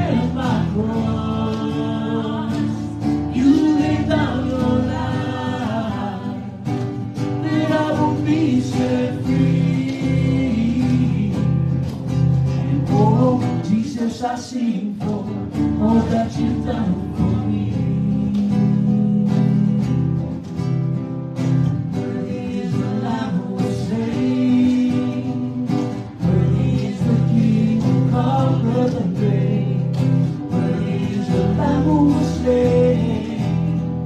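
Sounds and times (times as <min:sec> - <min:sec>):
worship singing: 0:00.0 - 0:11.8, 0:12.5 - 0:20.0, 0:21.9 - 0:34.0
strummed acoustic guitar: 0:00.0 - 0:34.0.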